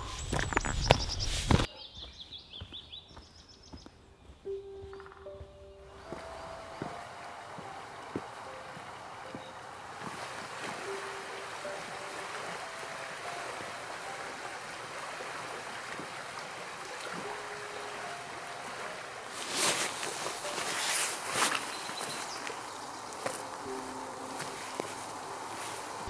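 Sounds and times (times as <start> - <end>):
footsteps squelching through mud: 0.0 - 13.7, 19.3 - 26.0
running water rushing: 5.2 - 26.0.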